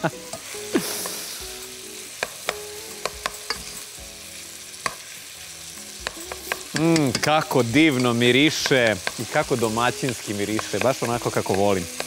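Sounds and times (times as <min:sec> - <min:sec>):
meat sizzling in oil: 0:00.0 - 0:12.0
wooden spoon clicking on pot: 0:06.0 - 0:09.2.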